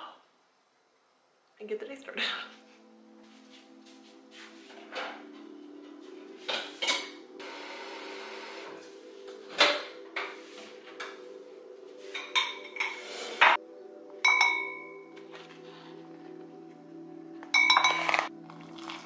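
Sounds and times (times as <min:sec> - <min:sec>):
dishes and utensils clinking: 0:06.4 - 0:07.2, 0:12.0 - 0:13.6, 0:14.2 - 0:15.2, 0:17.4 - 0:18.4.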